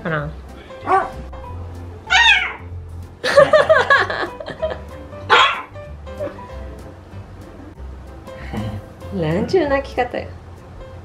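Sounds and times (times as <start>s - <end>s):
dog whining yowls: 0.8s - 1.2s, 2.1s - 2.7s, 5.3s - 5.7s.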